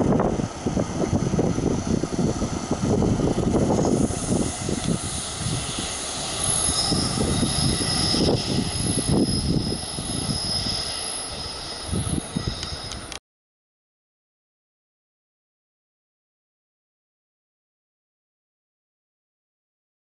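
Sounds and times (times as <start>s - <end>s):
high steady locomotive whine: 0.0s - 13.2s
train rumbling: 0.0s - 13.2s.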